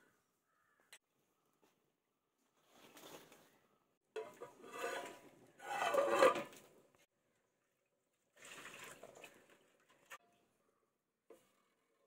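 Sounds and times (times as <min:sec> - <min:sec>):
metal lid scraping clay pot: 0:04.2 - 0:06.7.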